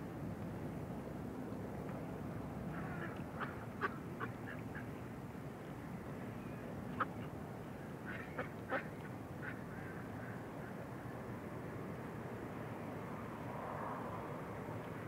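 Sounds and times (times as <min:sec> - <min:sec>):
low background noise: 0:00.0 - 0:15.0.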